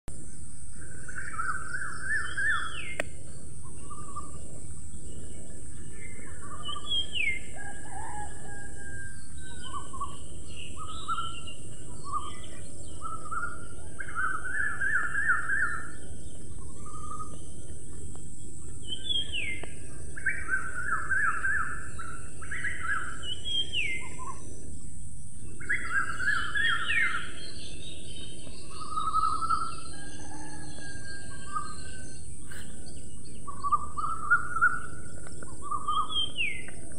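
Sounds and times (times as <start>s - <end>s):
birds chirping and trilling: 0.1s - 36.9s.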